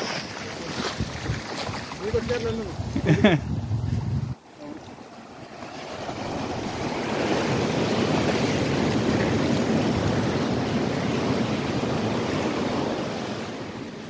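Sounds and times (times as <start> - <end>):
surf washing over sand: 0.0 - 14.0.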